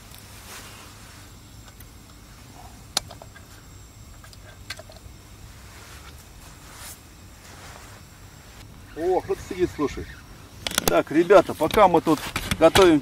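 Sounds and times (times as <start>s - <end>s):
gas burner rumble: 0.0s - 13.0s
sharp clicks: 10.6s - 11.0s.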